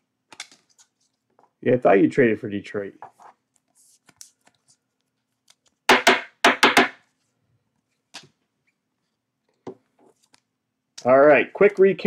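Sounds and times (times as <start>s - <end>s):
sharp knocks on hard surface: 5.9s - 7.0s.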